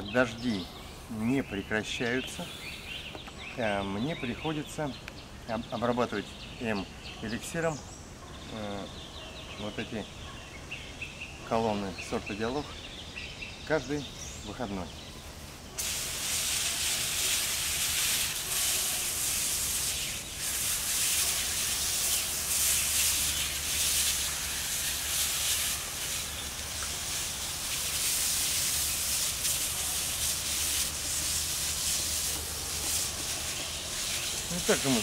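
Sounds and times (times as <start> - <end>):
sprayer nozzle hissing: 15.8 - 35.0.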